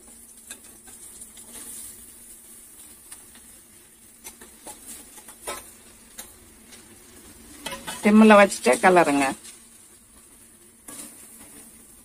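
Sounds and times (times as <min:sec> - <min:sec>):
faint steady sizzle: 0:00.0 - 0:12.0
metal tapping on pan: 0:04.2 - 0:06.3.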